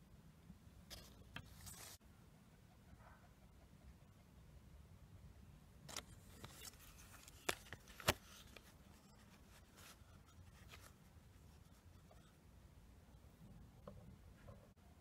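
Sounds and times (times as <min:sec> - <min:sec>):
faint paper rustling: 0:00.9 - 0:02.0, 0:05.9 - 0:12.4.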